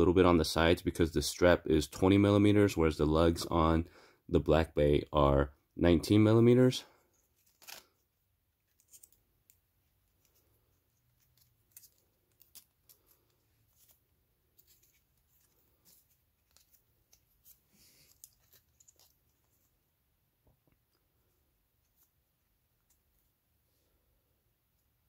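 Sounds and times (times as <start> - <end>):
watch strap clicks and rustles: 8.6 - 19.4.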